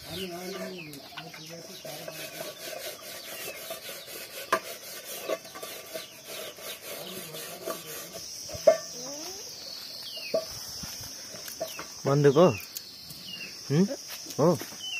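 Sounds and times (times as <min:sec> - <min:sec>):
high insect buzz: 0:00.0 - 0:14.9
dry plants rustling: 0:09.0 - 0:13.2.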